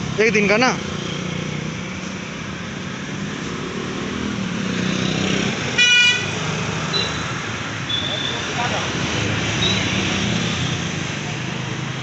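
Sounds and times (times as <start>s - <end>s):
street traffic engine hum: 0.0s - 12.0s
vehicle horn toot: 5.8s - 6.3s.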